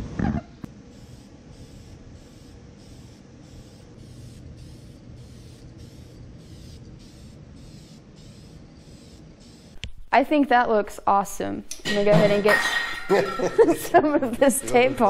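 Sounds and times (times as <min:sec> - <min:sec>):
aerosol spray can hissing: 0:00.9 - 0:09.8.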